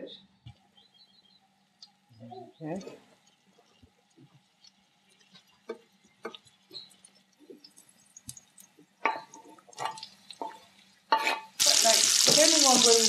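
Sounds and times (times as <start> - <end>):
oil popping in a pan: 3.2 - 13.0.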